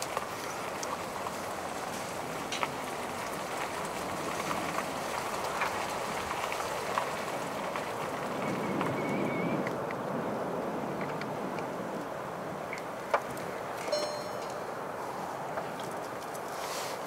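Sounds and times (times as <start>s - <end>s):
raindrops tapping: 0.0s - 10.0s
storm wind and rain: 0.0s - 17.0s.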